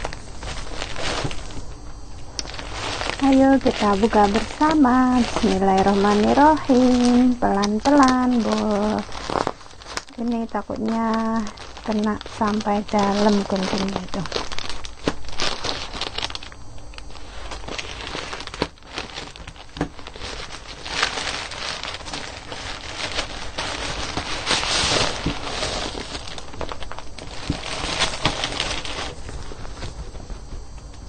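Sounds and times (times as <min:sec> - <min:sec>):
plastic bag crinkling: 0:00.0 - 0:31.0
scissors cutting plastic: 0:02.4 - 0:29.2.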